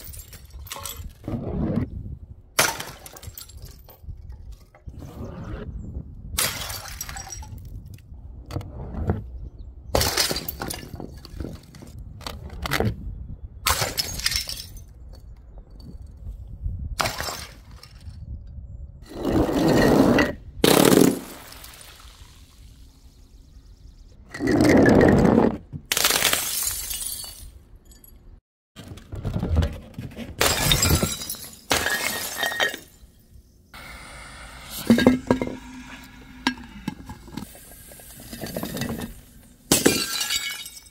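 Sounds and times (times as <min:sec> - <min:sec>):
glass bottles smashing: 0:00.0 - 0:01.2, 0:02.6 - 0:04.1, 0:06.4 - 0:07.8, 0:10.0 - 0:11.7, 0:13.7 - 0:14.9, 0:26.1 - 0:28.2, 0:30.4 - 0:33.4, 0:38.2 - 0:40.9.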